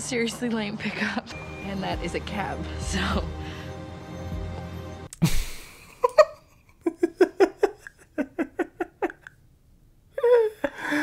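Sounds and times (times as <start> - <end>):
man laughing: 5.2 - 9.3.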